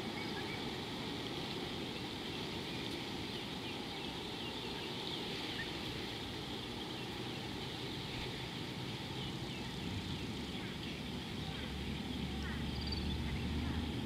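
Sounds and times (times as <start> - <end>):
outdoor background rush: 0.0 - 14.0
faint bird chirps: 6.6 - 14.0.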